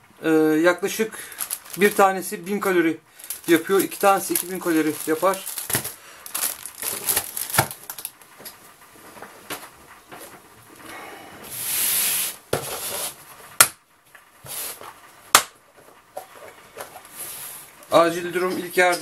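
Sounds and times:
plastic wrappers crinkling: 0.8s - 8.6s
cardboard box scraping on table: 11.6s - 13.2s.

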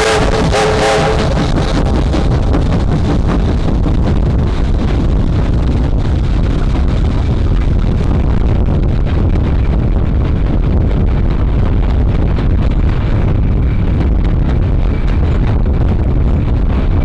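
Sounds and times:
steam locomotive chime whistle: 0.0s - 1.4s
train carriages rumbling on rails: 0.0s - 17.0s
wind buffeting microphone: 0.0s - 17.0s.

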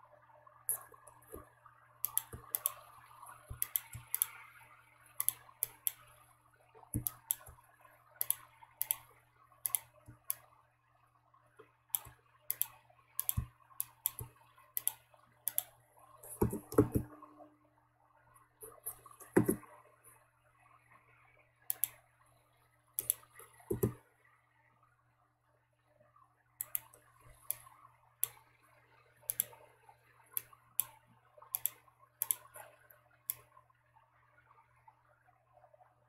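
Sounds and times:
faint steady hum: 0.0s - 36.0s
mouse and keyboard clicks: 0.7s - 4.4s, 7.0s - 7.6s, 8.2s - 9.0s, 9.6s - 10.4s, 11.9s - 17.2s, 18.6s - 19.6s, 23.0s - 24.0s, 26.6s - 28.4s, 29.3s - 29.6s, 30.4s - 32.6s.

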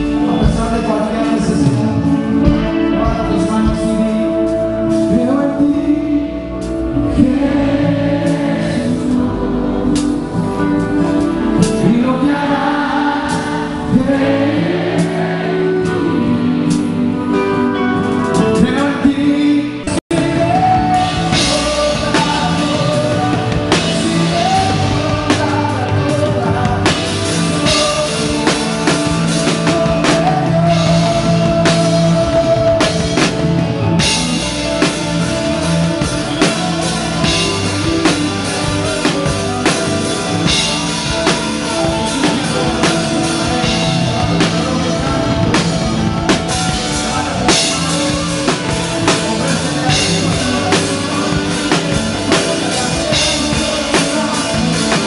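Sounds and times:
drum kit and cymbals: 0.0s - 5.9s, 19.9s - 55.0s
guitar chords: 0.0s - 55.0s
person singing: 0.0s - 55.0s.

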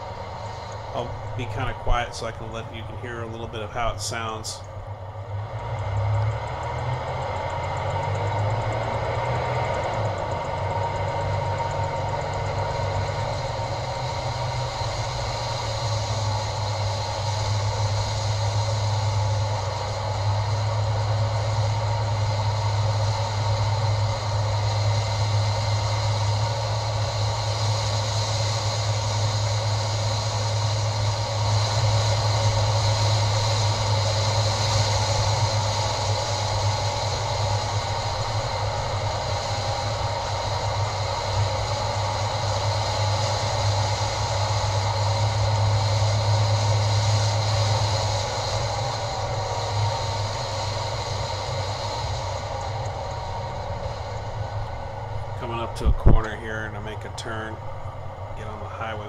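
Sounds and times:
rushing noise: 0.0s - 4.7s, 5.3s - 59.0s
truck engine drone: 0.0s - 59.0s.

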